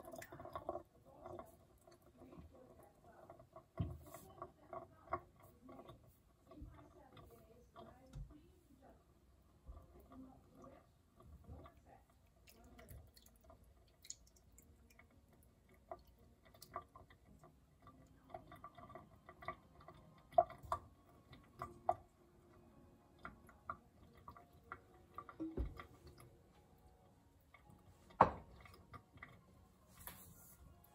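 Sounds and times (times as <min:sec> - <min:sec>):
liquid dripping: 0:00.0 - 0:30.9.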